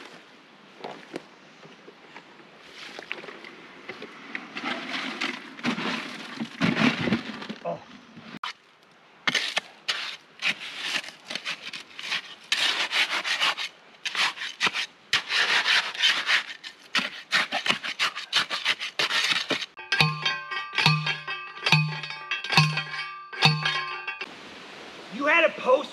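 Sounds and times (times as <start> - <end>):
trowel scraping concrete: 9.3 - 24.2.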